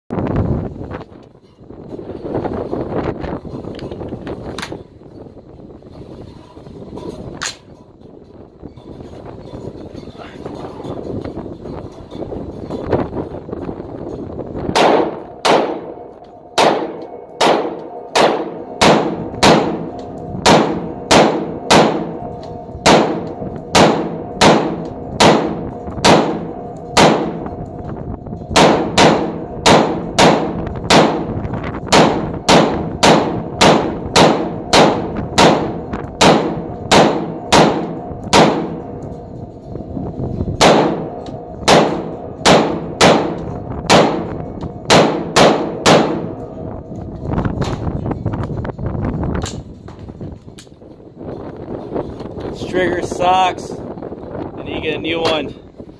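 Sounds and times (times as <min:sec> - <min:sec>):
pistol single shots: 0:14.8 - 0:16.0, 0:16.6 - 0:22.2.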